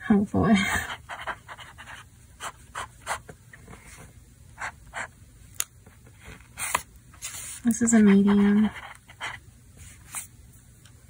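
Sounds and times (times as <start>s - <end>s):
fountain pen scratching on paper: 0.8s - 3.3s, 6.6s - 10.3s.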